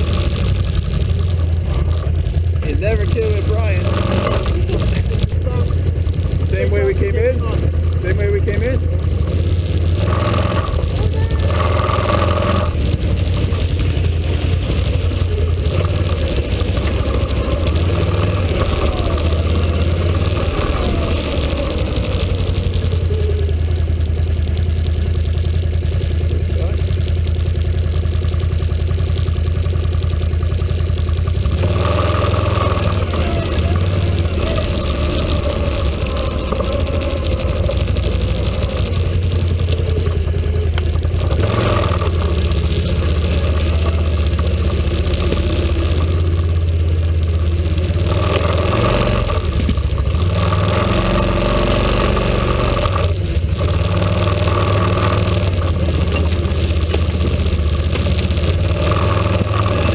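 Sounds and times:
quad bike engine revving: 0:00.0 - 0:59.9.

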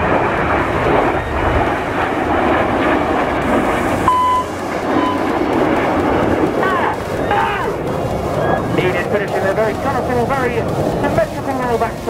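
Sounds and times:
jet roar: 0:00.0 - 0:12.0
whistle-like tones: 0:04.1 - 0:05.4, 0:06.6 - 0:09.3.

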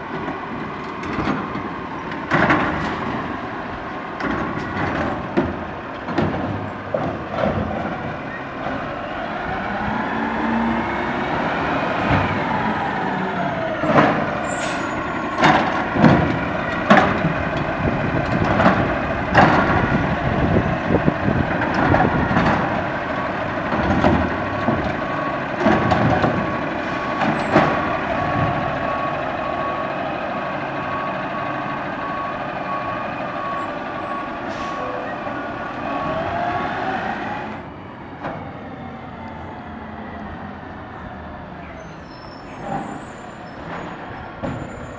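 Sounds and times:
garbage truck engine running: 0:00.0 - 0:37.7
loud bangs and knocks of carts: 0:01.0 - 0:03.3, 0:04.2 - 0:08.8, 0:14.9 - 0:29.0
reversing beeper: 0:08.3 - 0:17.0, 0:22.2 - 0:36.8.

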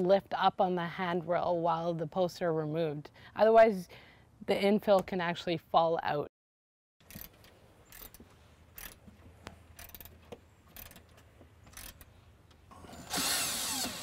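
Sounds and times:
socket ratchet clicking: 0:08.8 - 0:09.0
cordless drill running: 0:12.8 - 0:14.0.

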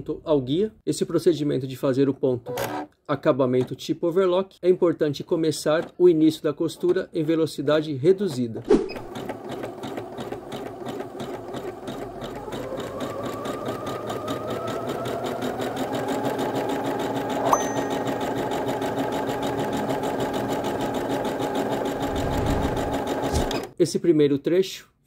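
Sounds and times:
sewing machine stitching: 0:02.5 - 0:02.9, 0:08.3 - 0:23.8.

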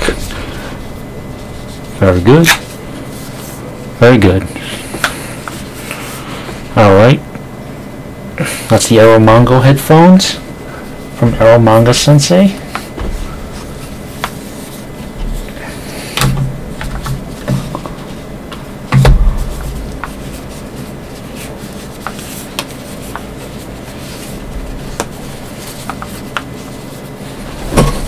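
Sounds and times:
heavy thump: 0:18.9 - 0:19.5.

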